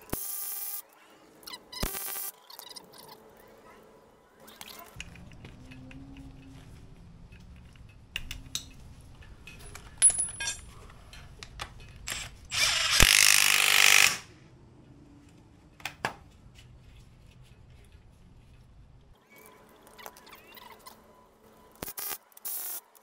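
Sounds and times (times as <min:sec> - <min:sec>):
metal tools clinking: 0:04.8 - 0:12.4.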